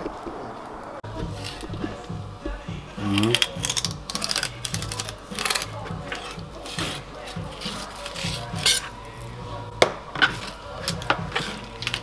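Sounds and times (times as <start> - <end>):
knife scraping on cutting board: 5.4 - 9.0.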